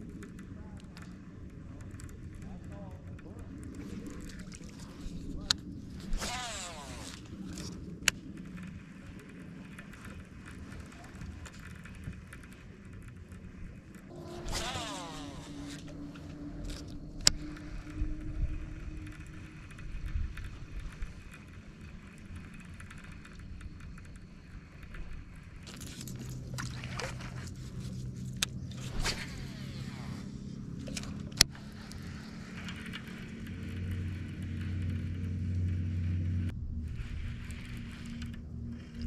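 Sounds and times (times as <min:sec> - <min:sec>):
sharp clicks: 0:00.0 - 0:26.7
fishing reel whirring: 0:00.0 - 0:39.0
trolling motor humming: 0:00.0 - 0:39.0.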